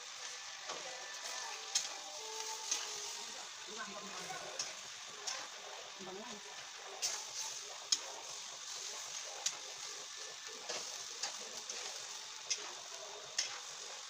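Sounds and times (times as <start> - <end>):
vegetables sizzling in a pan: 0.0 - 14.0
spatula scraping a pan: 6.9 - 14.0.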